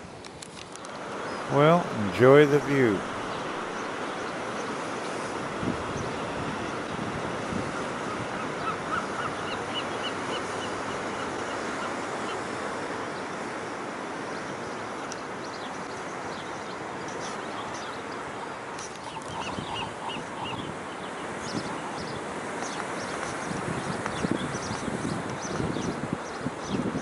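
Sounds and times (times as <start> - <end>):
ocean surf: 0.0 - 19.2, 19.8 - 27.0
wind: 0.0 - 27.0
gulls calling: 1.2 - 5.3, 7.7 - 12.5.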